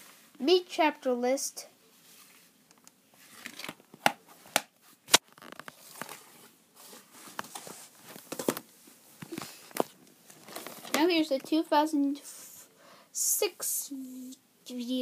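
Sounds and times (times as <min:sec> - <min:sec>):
case and paper rustling: 0:03.3 - 0:11.0.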